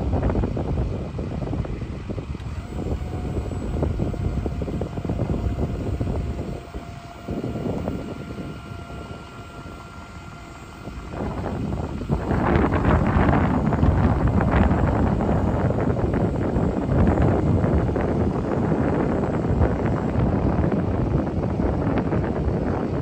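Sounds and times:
hydraulic hoist whine: 0:00.0 - 0:23.0
truck engine rumbling: 0:02.3 - 0:23.0.

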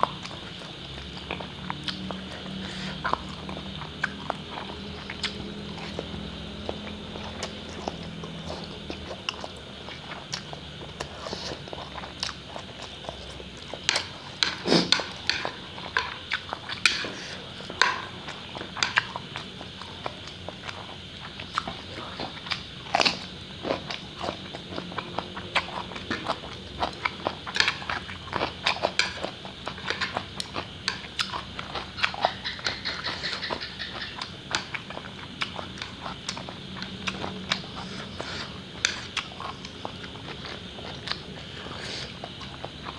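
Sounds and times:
chewing: 0:00.0 - 0:42.9
slurping noodles: 0:14.5 - 0:15.1.

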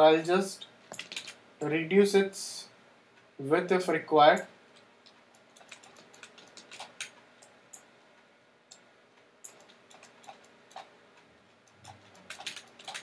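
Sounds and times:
computer mouse and keyboard clicks: 0:00.9 - 0:01.4, 0:04.4 - 0:07.9, 0:08.7 - 0:10.9, 0:11.6 - 0:13.0.

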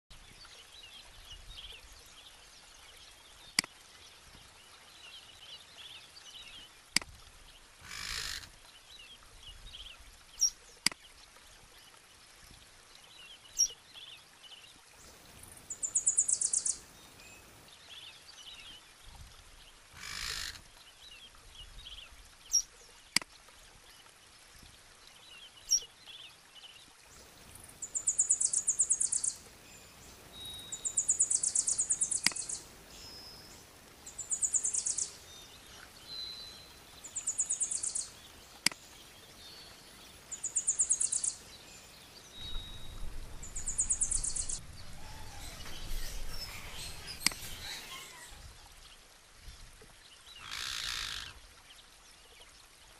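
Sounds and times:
small birds chirping: 0:15.0 - 0:18.8, 0:25.2 - 0:49.0.

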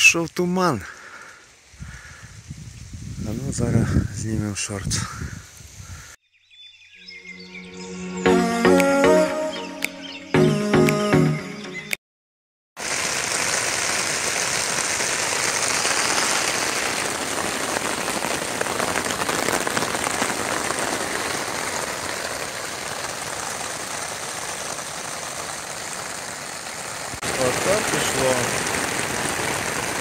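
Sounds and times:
heavy rain hissing: 0:00.0 - 0:06.2, 0:12.8 - 0:30.0
music: 0:07.5 - 0:12.0.

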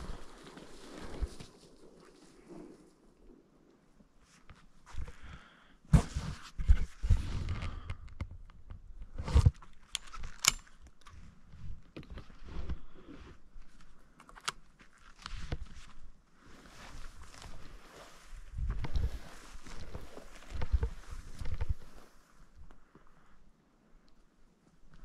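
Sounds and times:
dry grass rustling and crunching: 0:00.0 - 0:02.6, 0:14.8 - 0:22.8.

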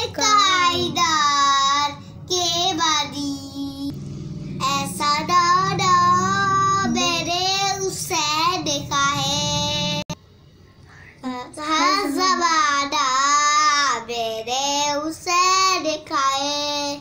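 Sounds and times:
boy singing unaccompanied: 0:00.0 - 0:03.9, 0:04.6 - 0:10.2, 0:11.2 - 0:17.0.

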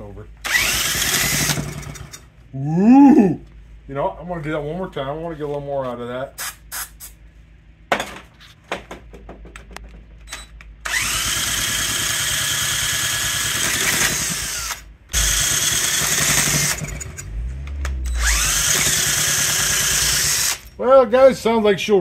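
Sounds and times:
small engine revving with high whine: 0:14.3 - 0:20.7.

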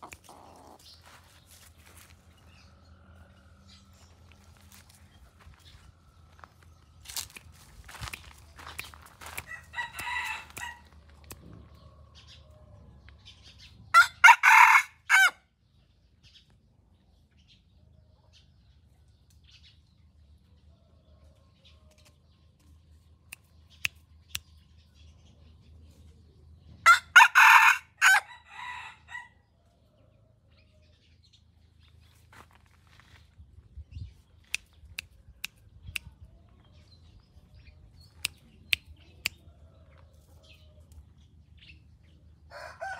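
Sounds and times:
rooster crowing: 0:09.4 - 0:10.9, 0:13.9 - 0:15.4, 0:26.9 - 0:29.4, 0:42.5 - 0:42.9.

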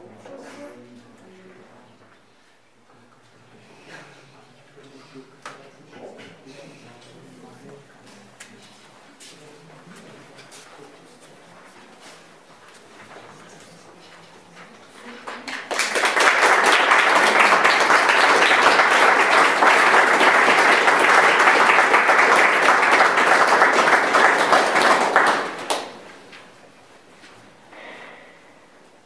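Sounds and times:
audience applauding: 0:15.2 - 0:26.2.

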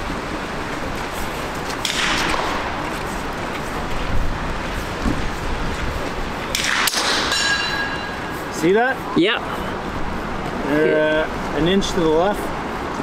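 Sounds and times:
steady background noise: 0:00.0 - 0:13.0
rifle shot: 0:01.8 - 0:02.6.

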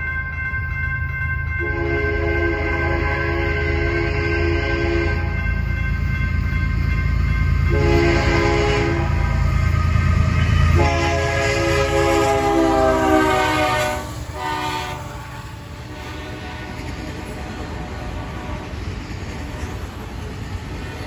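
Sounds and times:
train rumble: 0:00.0 - 0:21.0
train horn blasts: 0:01.6 - 0:05.5, 0:07.6 - 0:18.8.

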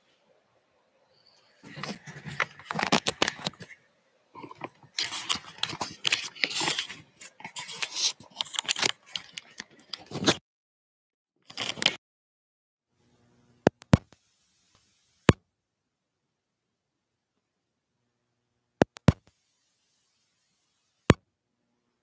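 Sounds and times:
camera handling noise: 0:01.7 - 0:03.8, 0:04.4 - 0:10.4, 0:11.5 - 0:12.0.

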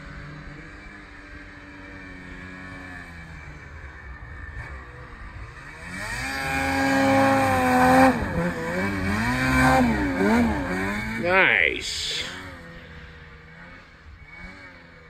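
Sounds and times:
snowmobile engine revving: 0:05.4 - 0:15.0.

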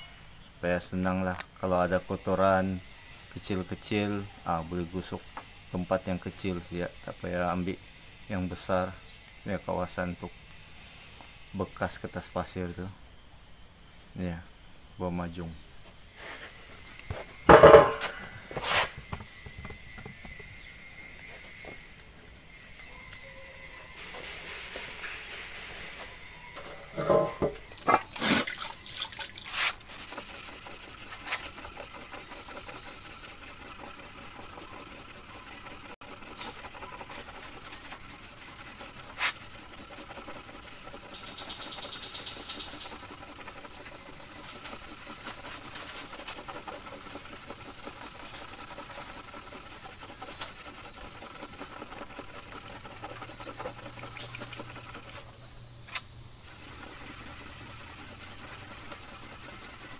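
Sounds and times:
sandpaper rubbing: 0:16.1 - 0:20.4, 0:23.3 - 0:26.3, 0:27.8 - 0:59.9.

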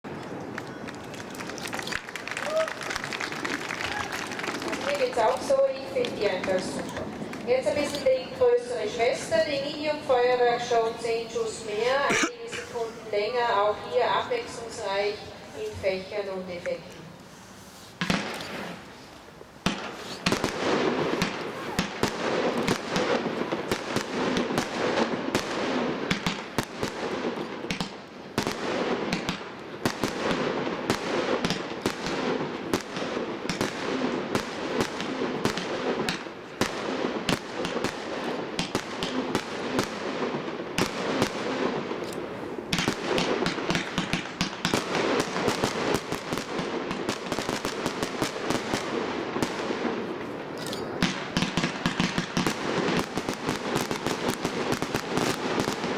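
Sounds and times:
fireworks bursting with sharp bangs: 0:00.0 - 0:16.8, 0:17.7 - 0:55.9.

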